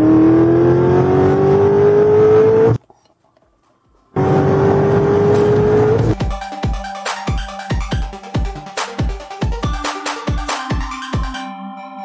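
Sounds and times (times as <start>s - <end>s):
car engine accelerating: 0.0s - 2.8s, 4.1s - 6.2s.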